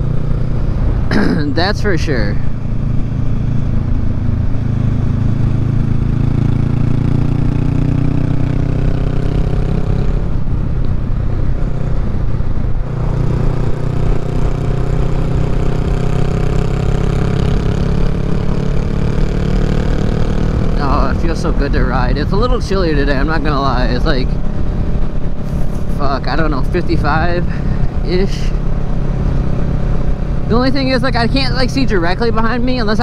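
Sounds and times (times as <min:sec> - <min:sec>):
motorcycle engine under throttle: 0:00.0 - 0:33.0.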